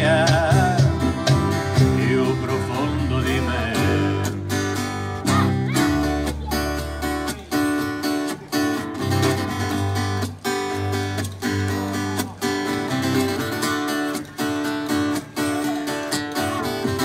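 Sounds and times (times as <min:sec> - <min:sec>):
electric bass: 0:00.0 - 0:07.2
strummed acoustic guitar: 0:00.0 - 0:17.0.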